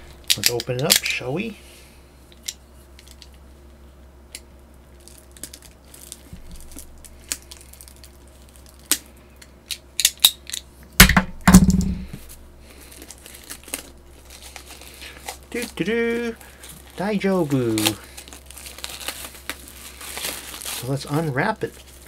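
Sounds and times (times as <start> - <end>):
packaging rustle: 4.9 - 9.1, 12.2 - 22.0
packaging clicks and crinkles: 4.9 - 10.7, 12.7 - 22.0
knocks on packaging: 11.0 - 12.2.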